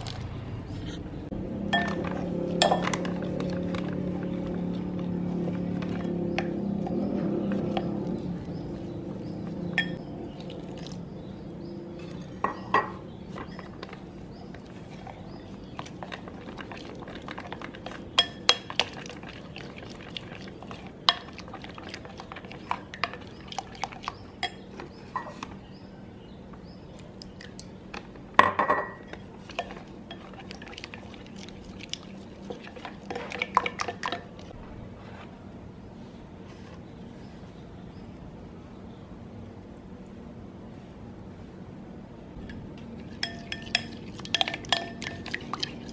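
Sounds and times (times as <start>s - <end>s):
spoon clinking against glass: 9.8s - 10.0s, 43.2s - 45.4s
spoon scraping batter: 13.2s - 25.6s, 29.1s - 35.4s, 43.0s - 45.9s.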